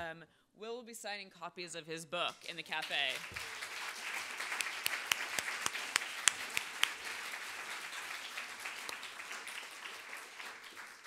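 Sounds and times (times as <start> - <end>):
audience applauding: 2.5 - 11.0.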